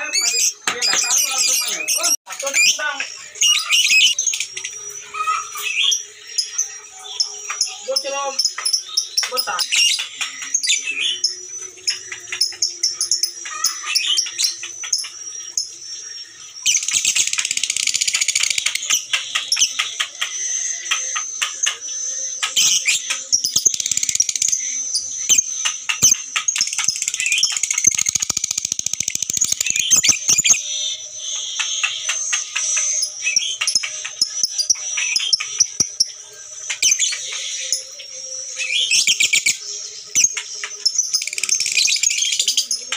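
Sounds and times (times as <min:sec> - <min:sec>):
lovebirds chirping: 0:00.0 - 0:42.9
lovebird chattering trill: 0:22.5 - 0:30.8.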